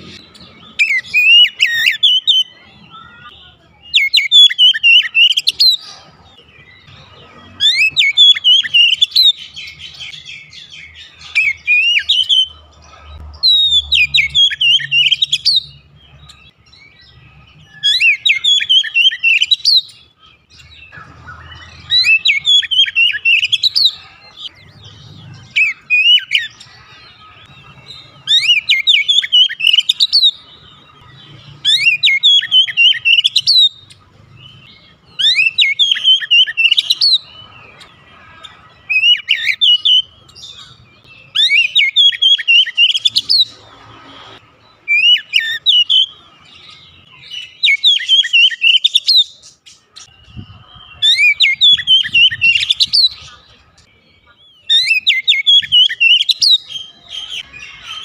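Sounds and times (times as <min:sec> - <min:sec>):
bird singing whistled phrases: 0:00.2 - 0:05.8, 0:07.6 - 0:12.6, 0:13.4 - 0:15.8, 0:16.4 - 0:20.0, 0:20.6 - 0:24.0, 0:25.5 - 0:26.6, 0:28.2 - 0:30.4, 0:31.6 - 0:33.8, 0:35.2 - 0:37.4, 0:38.9 - 0:43.5, 0:44.9 - 0:46.1, 0:47.2 - 0:49.3, 0:54.6 - 0:58.0.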